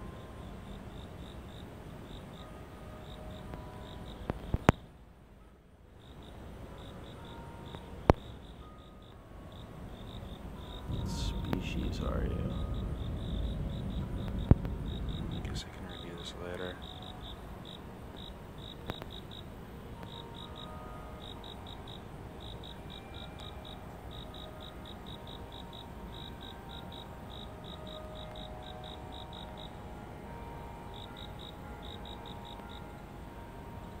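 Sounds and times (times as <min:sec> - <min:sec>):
insect chirping: 0:00.0 - 0:05.0, 0:05.9 - 0:34.0.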